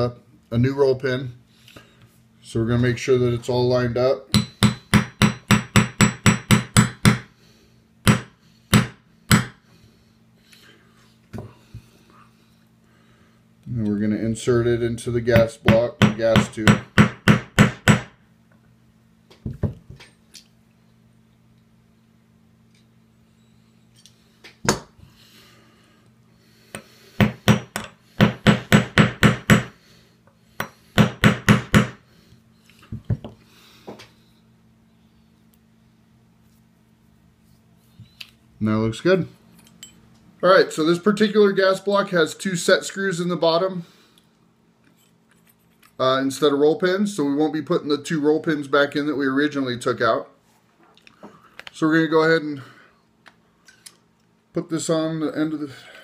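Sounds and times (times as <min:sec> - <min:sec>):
hammer tapping metal punch: 0:04.3 - 0:07.3, 0:08.0 - 0:09.6, 0:15.4 - 0:18.1, 0:27.2 - 0:29.7.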